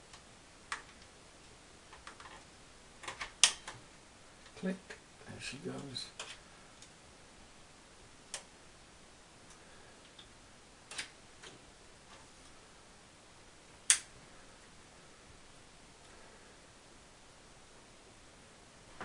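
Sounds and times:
hands clicking and tapping hardware: 1.9 - 3.8.

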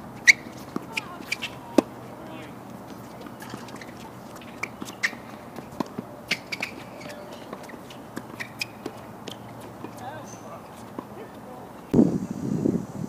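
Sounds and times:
shoe squeaks: 0.2 - 11.0
shoes tapping on hard court: 0.2 - 11.4.

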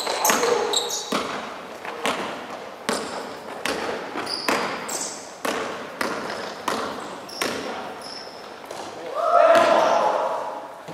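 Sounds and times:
sneaker squeaks on floor: 0.0 - 1.4, 4.1 - 5.5, 6.3 - 9.0
basketball bouncing on hardwood: 0.0 - 7.8.

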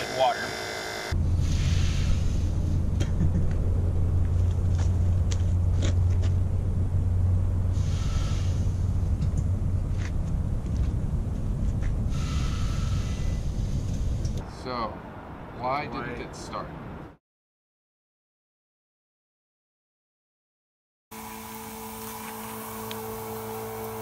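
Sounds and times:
steam hissing: 0.0 - 2.6, 7.8 - 9.0, 12.1 - 14.4.

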